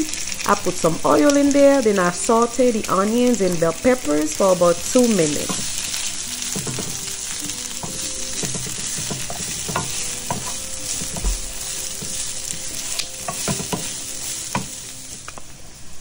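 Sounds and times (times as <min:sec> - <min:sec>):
vegetables sizzling in oil: 0:00.0 - 0:16.0
wooden spoon tapping pan: 0:05.2 - 0:15.4.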